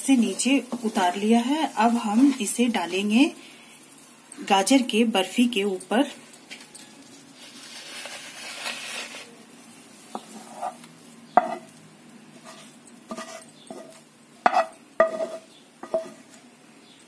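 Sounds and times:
wooden spatula scraping pan: 7.4s - 9.3s, 10.1s - 11.7s, 12.4s - 16.4s
spatula knocking on pan: 14.5s - 16.2s.

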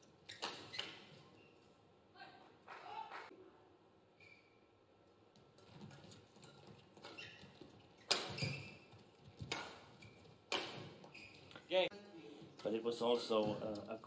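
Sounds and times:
shoes squeaking on court: 0.0s - 1.8s, 4.2s - 4.7s, 5.4s - 11.7s
rackets striking shuttlecock: 8.0s - 8.6s, 9.4s - 11.1s.

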